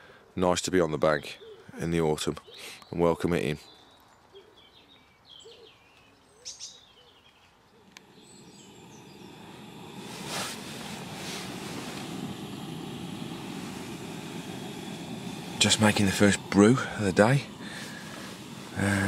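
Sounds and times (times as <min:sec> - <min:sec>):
faint bird calls: 0:01.1 - 0:19.0
camping stove burner hissing: 0:07.8 - 0:19.0.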